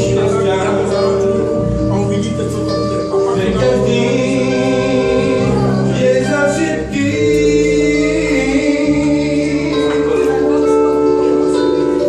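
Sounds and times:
electronic keyboard chords: 0.0s - 12.0s
man singing into a microphone: 3.3s - 11.2s.

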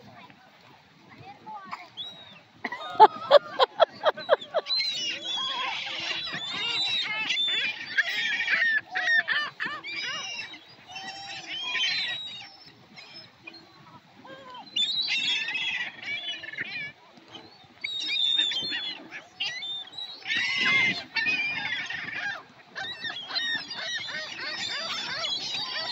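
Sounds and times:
gulls calling: 1.7s - 25.9s.

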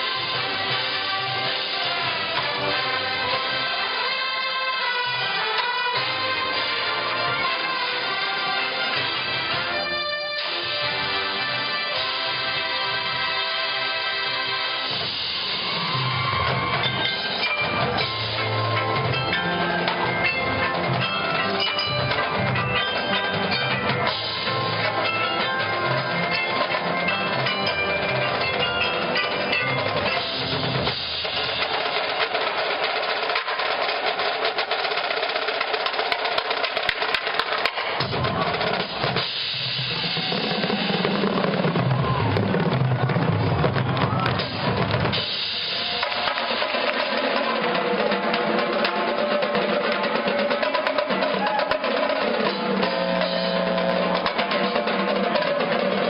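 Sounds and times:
drumline snare and bass drums: 0.0s - 56.0s
marching band brass and winds: 0.0s - 56.0s.

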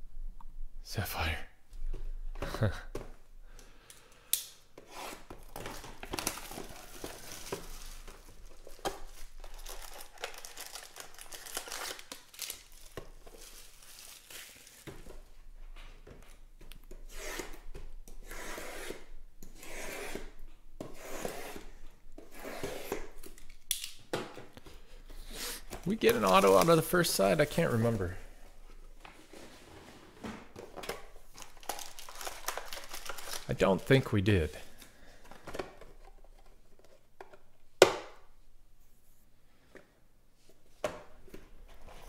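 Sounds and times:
foil wrappers crinkling: 5.4s - 15.1s, 25.5s - 28.0s, 31.2s - 34.8s.

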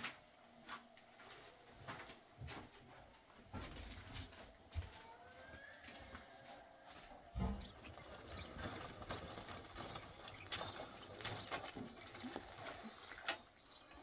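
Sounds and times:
motorcycle rolled over stony ground: 7.4s - 13.8s.

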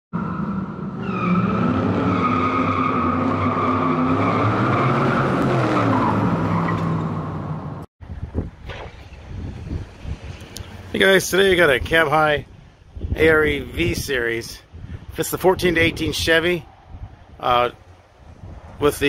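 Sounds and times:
car engine revving: 0.2s - 7.8s.

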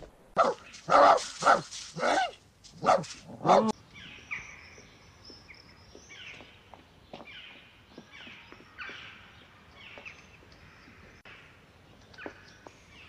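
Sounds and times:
birds chirping faintly: 0.2s - 13.0s
dog barking: 0.4s - 3.7s.

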